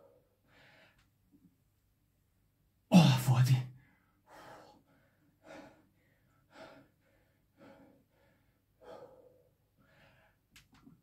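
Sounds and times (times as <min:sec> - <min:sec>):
man gasping breaths: 0:03.8 - 0:10.5.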